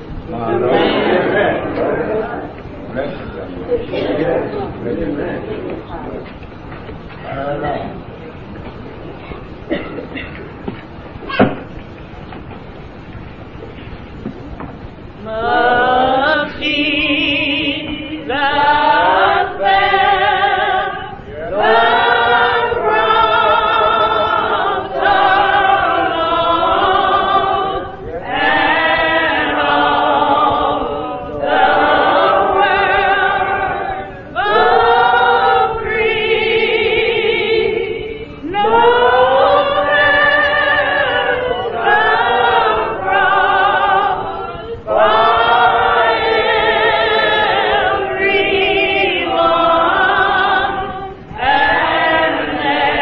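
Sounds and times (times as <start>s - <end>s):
congregation singing a hymn: 0.0s - 53.0s.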